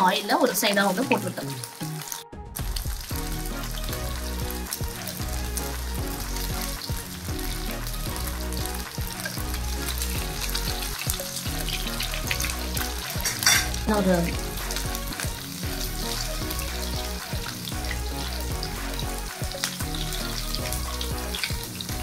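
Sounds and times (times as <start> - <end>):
fish sizzling in oil: 0.0 - 22.0
background music with a beat: 1.0 - 22.0.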